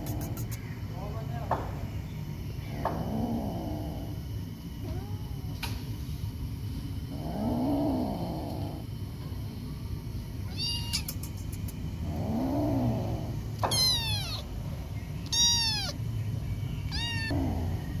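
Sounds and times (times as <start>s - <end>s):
kitten meowing: 10.4s - 11.3s, 13.6s - 14.5s, 15.2s - 16.0s, 16.9s - 17.4s.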